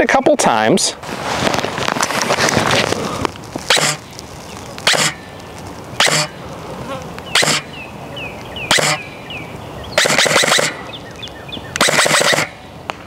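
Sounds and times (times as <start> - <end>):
airsoft rifle shots: 3.7 - 4.0, 4.8 - 5.2, 6.0 - 6.3, 7.4 - 7.6, 8.7 - 9.0, 10.0 - 10.8, 11.8 - 12.6.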